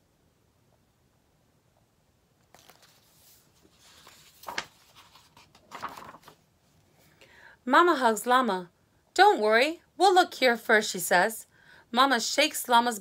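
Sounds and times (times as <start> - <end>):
paper pages rustling: 2.4 - 6.4.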